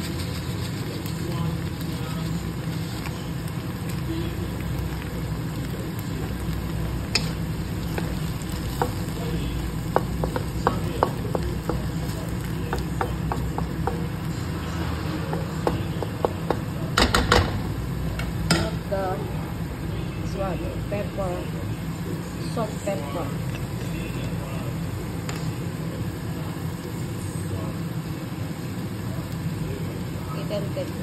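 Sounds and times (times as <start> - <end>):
steady low hum: 0.0 - 31.0
vegetables sizzling in a wok: 0.0 - 31.0
spatula tapping against pan: 8.7 - 9.1, 9.8 - 14.2, 15.3 - 17.5.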